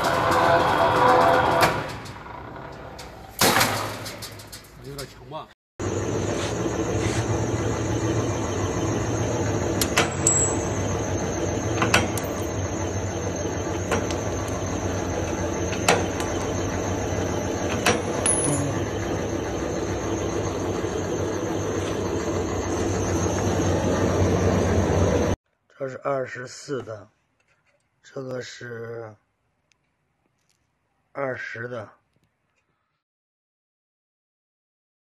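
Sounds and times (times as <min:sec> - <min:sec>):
machine motor humming: 0:00.0 - 0:03.0, 0:05.8 - 0:25.4.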